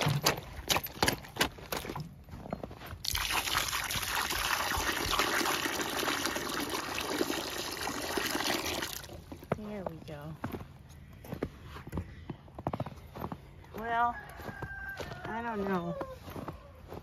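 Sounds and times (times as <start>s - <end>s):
water pouring into a pan: 3.0s - 9.1s
crunching footsteps in snow: 9.5s - 17.0s.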